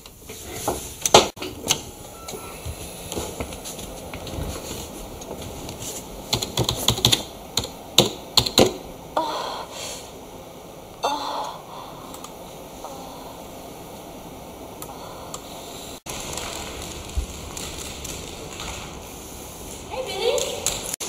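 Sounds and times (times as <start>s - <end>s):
keyboard keys clicking: 6.3s - 8.8s.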